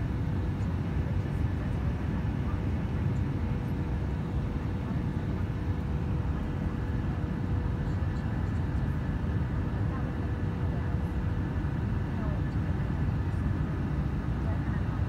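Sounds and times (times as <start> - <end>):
jet engines and rushing air roar: 0.0 - 15.0.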